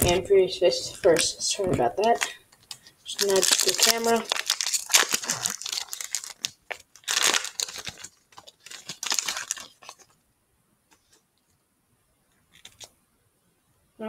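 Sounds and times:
foil wrapper crinkling: 2.0s - 10.2s, 12.5s - 12.9s.

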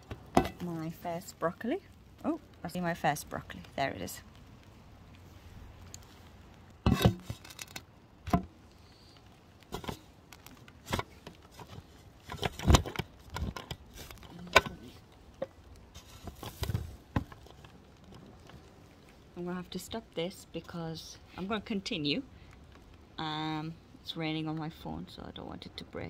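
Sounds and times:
rain tapping on phone: 0.0s - 20.0s.

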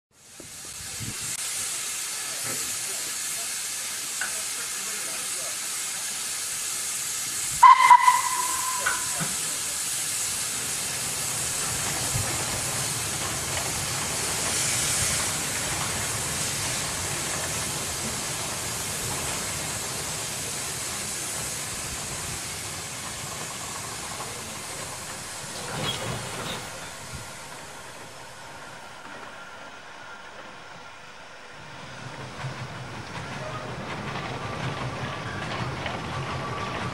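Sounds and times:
model train hiss: 0.2s - 30.6s
brief high tone: 7.6s - 9.3s.

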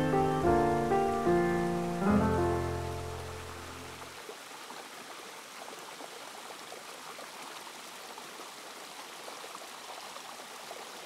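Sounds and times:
creek water rushing: 0.0s - 11.0s
small splashes and trickles: 0.0s - 11.0s.

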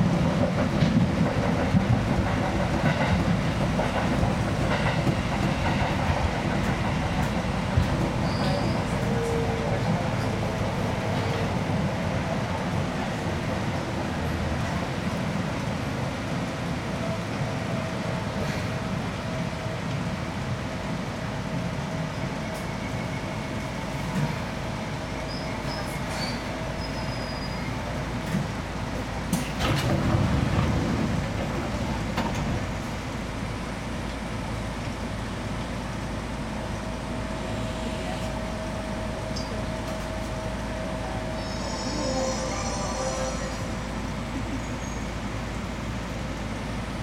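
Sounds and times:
train motors and wheels rumbling: 0.0s - 47.0s.

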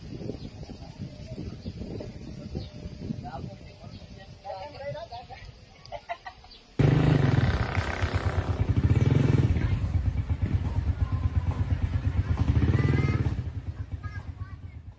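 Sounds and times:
small engine running: 6.8s - 14.2s.

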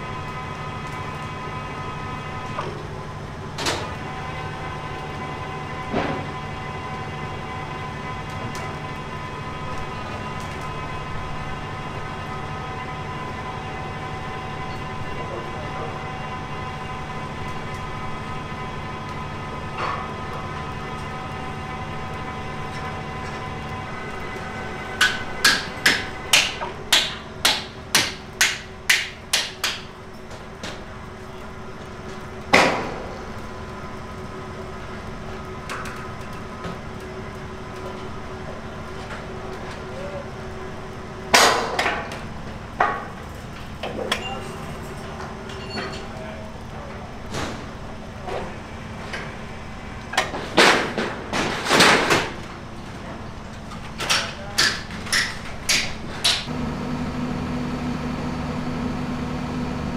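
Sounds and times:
machine engine humming: 56.5s - 59.9s.

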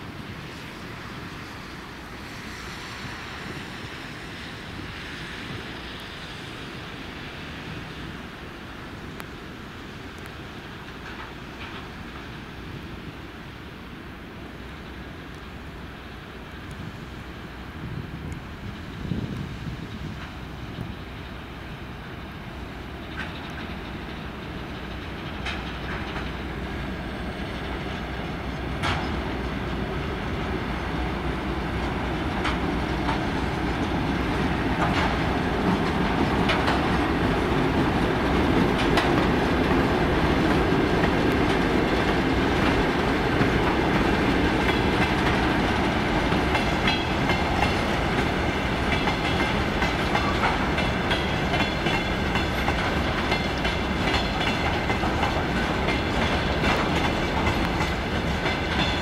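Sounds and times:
train wheels rumbling on rails: 0.0s - 59.0s
wheels clicking over rail joints: 19.0s - 59.0s.

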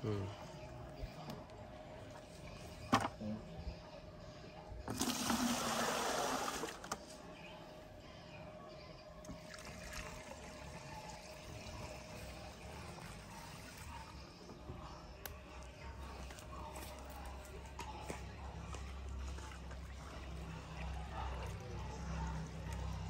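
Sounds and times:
liquid pouring from bucket: 4.9s - 7.0s, 9.3s - 12.1s.

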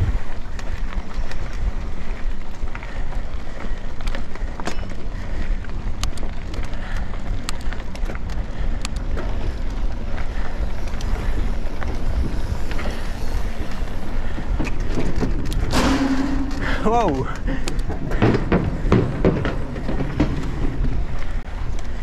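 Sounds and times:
bike tyre noise on gravel: 0.0s - 22.0s
gravel clicks and bike rattle: 0.0s - 22.0s
wind rumble on microphone: 0.0s - 22.0s.

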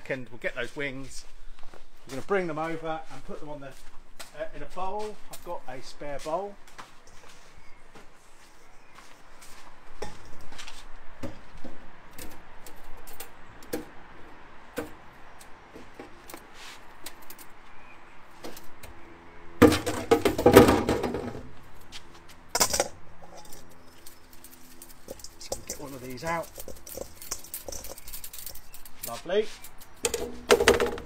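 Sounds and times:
wire basket clattering on metal bowl: 22.6s - 31.0s.

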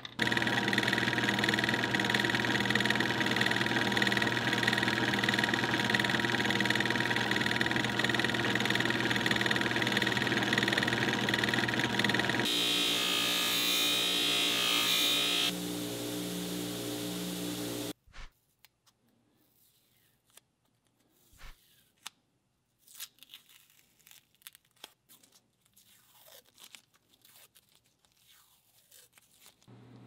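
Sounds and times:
metal lathe running: 0.2s - 17.9s
buffing wheel polishing metal: 15.2s - 17.9s.

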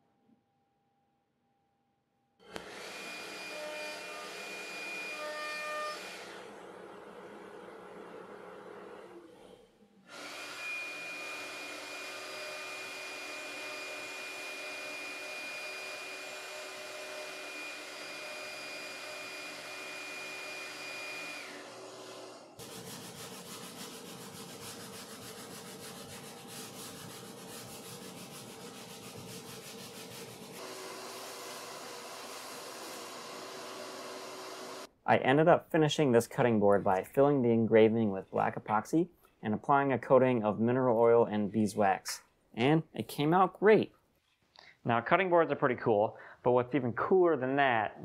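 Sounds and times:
shop vacuum running: 2.4s - 34.9s
router spindle high whine: 10.1s - 22.6s.

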